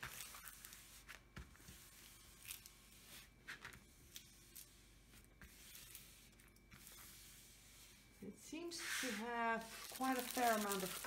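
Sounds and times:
hands rubbing plastic film: 0:08.8 - 0:11.0.

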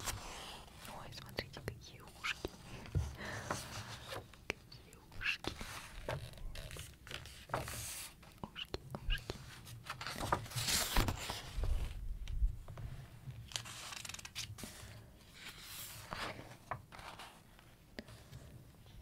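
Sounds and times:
book pages turning: 0:05.4 - 0:08.4, 0:09.2 - 0:12.0, 0:13.4 - 0:18.4.

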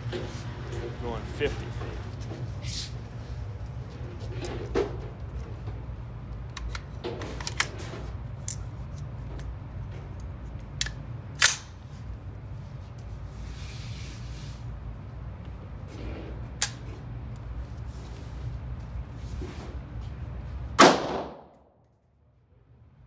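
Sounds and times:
steady low hum: 0:00.0 - 0:23.0
rifle metallic clicks and clacks: 0:06.4 - 0:07.7, 0:08.4 - 0:11.8, 0:16.6 - 0:17.4.

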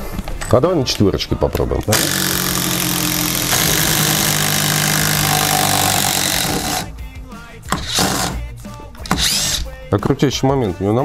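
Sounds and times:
impact driver hammering: 0:01.8 - 0:06.9, 0:07.6 - 0:09.6.

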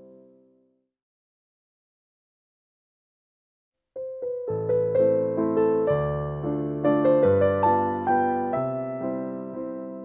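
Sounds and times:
piano music: 0:04.0 - 0:10.0.

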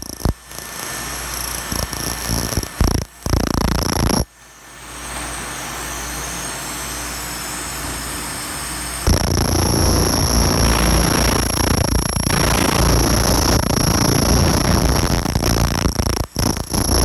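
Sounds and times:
laser cleaner whining and crackling: 0:00.0 - 0:04.3, 0:06.1 - 0:17.0
steady rushing noise: 0:09.1 - 0:17.0.

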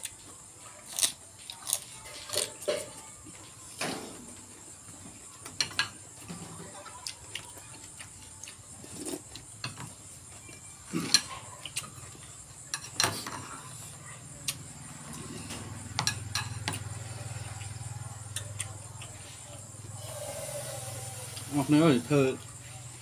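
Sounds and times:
chewing: 0:00.8 - 0:03.5, 0:06.9 - 0:09.5, 0:10.3 - 0:12.3, 0:16.7 - 0:19.9.

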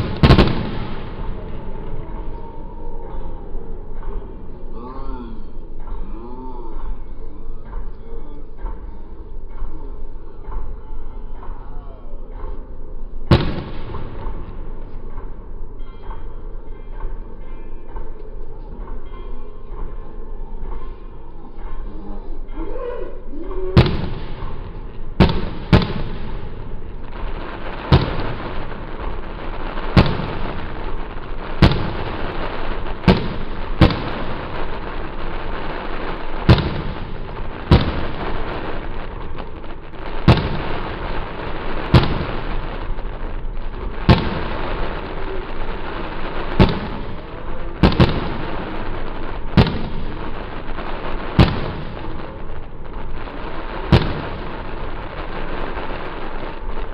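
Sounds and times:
fireworks crackling hiss: 0:00.0 - 0:02.4, 0:23.8 - 0:56.9
fireworks bangs: 0:00.0 - 0:04.7, 0:12.4 - 0:18.2, 0:23.6 - 0:56.9.

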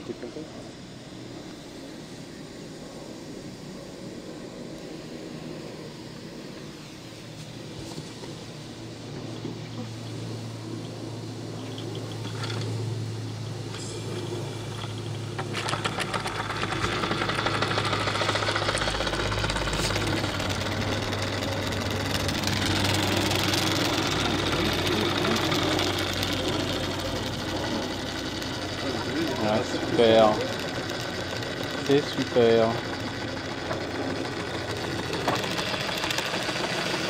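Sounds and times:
toy steam engine chuffing: 0:11.6 - 0:37.0.

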